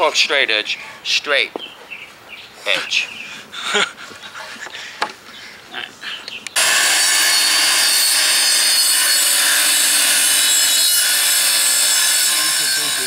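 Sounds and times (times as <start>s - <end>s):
circular saw cutting paneling: 6.6s - 13.0s.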